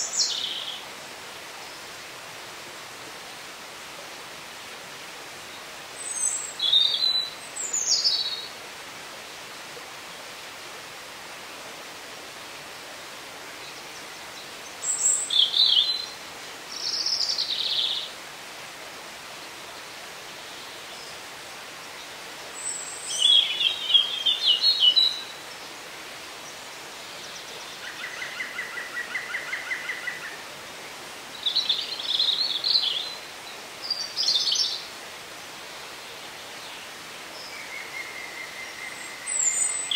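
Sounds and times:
songbirds singing: 0:00.0 - 0:00.9, 0:05.4 - 0:08.6, 0:13.5 - 0:18.2, 0:19.7 - 0:30.4, 0:31.3 - 0:39.9
steady hiss: 0:00.0 - 0:39.9.

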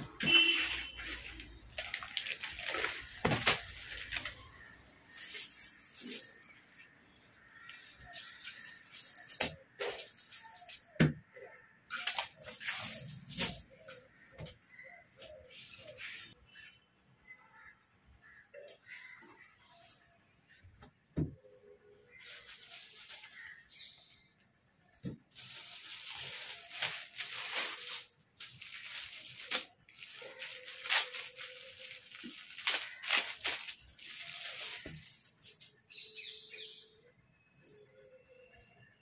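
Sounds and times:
plastic packet crinkling: 0:00.5 - 0:06.9, 0:11.9 - 0:13.8, 0:22.1 - 0:23.6, 0:25.3 - 0:35.9.

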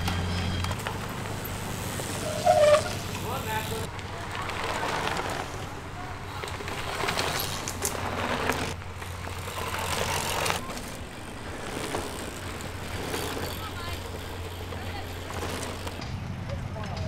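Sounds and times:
bike tyres crunching over dirt: 0:00.0 - 0:16.0
bikes rattling: 0:00.0 - 0:17.0.

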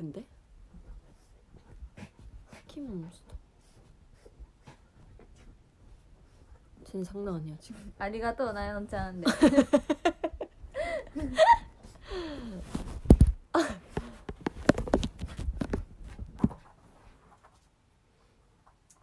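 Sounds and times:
women laughing: 0:09.2 - 0:11.8
phone rustling and knocking on bed: 0:12.7 - 0:17.0.

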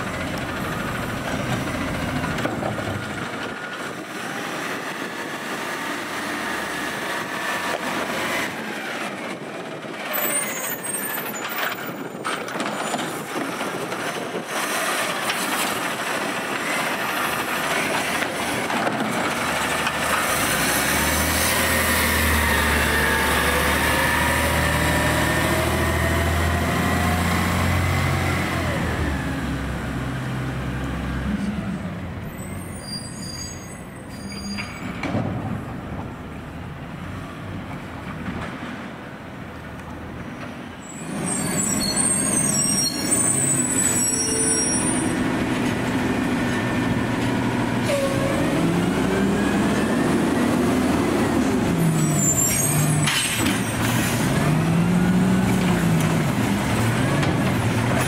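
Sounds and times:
garbage truck diesel engine: 0:00.0 - 0:58.0.

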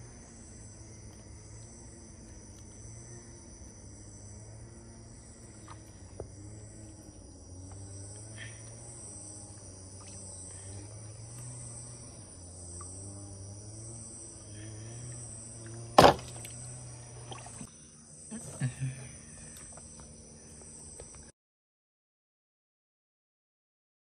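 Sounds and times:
insects chorus: 0:00.0 - 0:21.3
low wavering hum: 0:00.0 - 0:21.3
loud knock: 0:16.0 - 0:16.3.

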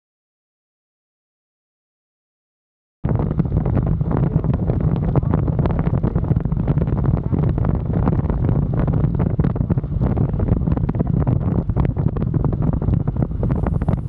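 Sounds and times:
wind buffeting microphone: 0:03.0 - 0:14.0.

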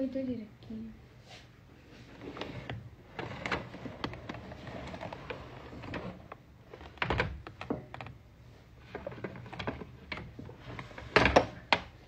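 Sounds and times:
makeup items clicking and knocking: 0:03.5 - 0:08.2.

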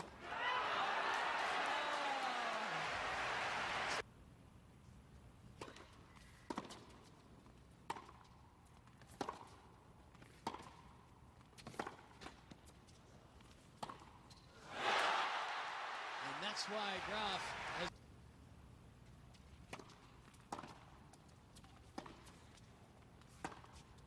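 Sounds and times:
crowd noise: 0:00.2 - 0:04.0, 0:14.7 - 0:17.9.

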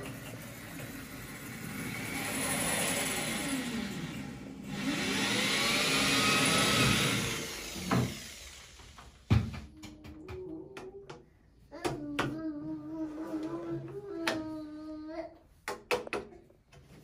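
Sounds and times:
power drill boring into tile: 0:00.2 - 0:09.2.

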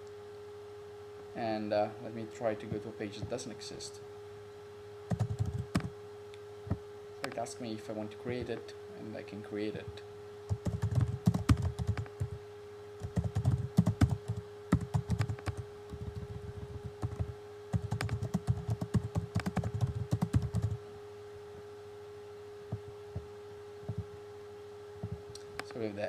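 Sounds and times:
typing on keyboard: 0:05.1 - 0:05.9, 0:10.5 - 0:12.4, 0:13.0 - 0:16.2, 0:16.9 - 0:20.8.

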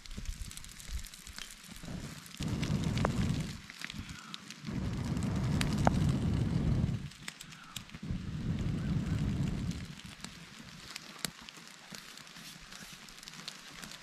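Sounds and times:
kindling crackling and popping: 0:00.0 - 0:14.0
person blowing into fire: 0:01.7 - 0:10.3.

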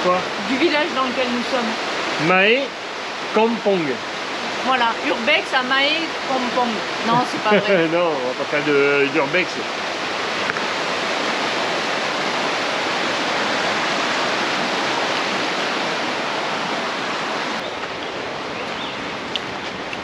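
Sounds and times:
stream water rushing: 0:00.0 - 0:20.0.

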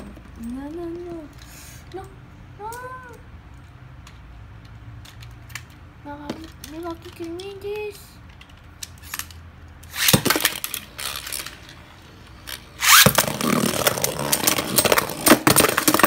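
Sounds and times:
spinning top clattering on plastic: 0:03.9 - 0:16.0
loud clattering and scraping: 0:09.0 - 0:16.0.

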